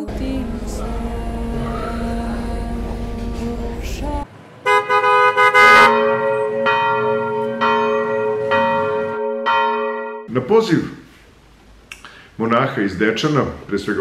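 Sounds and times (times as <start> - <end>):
background music with rumble: 0.0 - 4.3
church bells ringing: 5.6 - 10.3.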